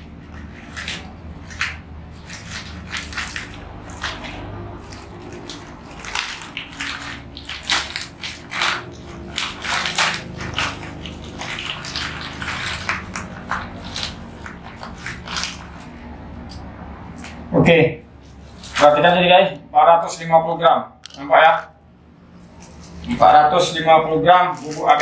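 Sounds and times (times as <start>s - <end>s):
plastic bag crinkling: 0.3s - 16.0s, 24.5s - 25.0s.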